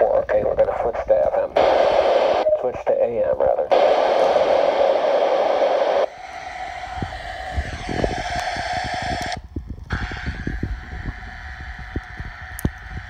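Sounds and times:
radio static hiss: 0:00.0 - 0:06.1.

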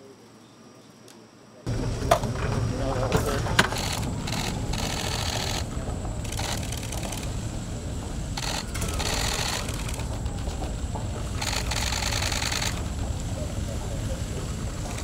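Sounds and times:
low rumble: 0:01.7 - 0:15.0
camera shutters clicking: 0:03.6 - 0:05.7, 0:06.3 - 0:07.3, 0:08.4 - 0:10.1, 0:11.4 - 0:12.8.

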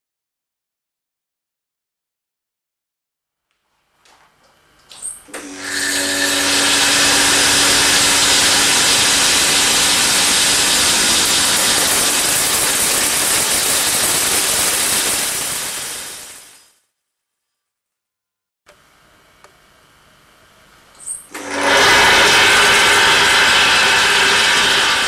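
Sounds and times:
vibratory feeder running: 0:04.8 - 0:15.8, 0:21.0 - 0:25.0.

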